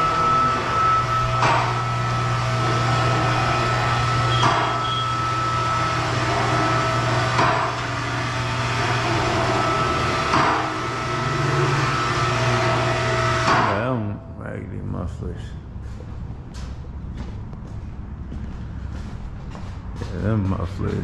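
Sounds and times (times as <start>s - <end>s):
hydraulic pump humming: 0.0s - 14.4s.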